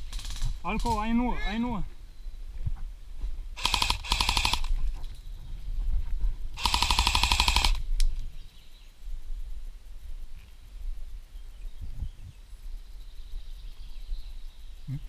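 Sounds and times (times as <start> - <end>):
airsoft rifle full-auto bursts: 3.6 - 4.8, 6.6 - 7.8.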